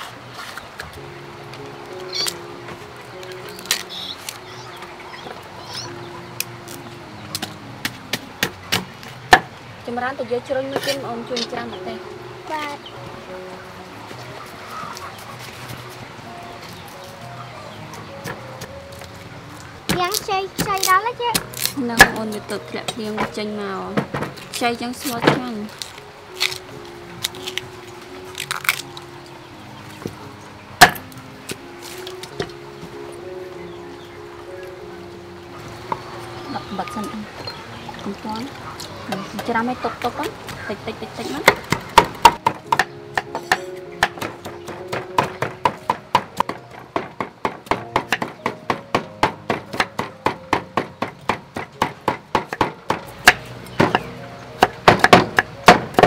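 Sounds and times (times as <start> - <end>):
bamboo husks cracking: 1.9 - 2.5, 3.1 - 4.9, 5.8 - 9.4, 17.9 - 22.6, 24.2 - 32.6.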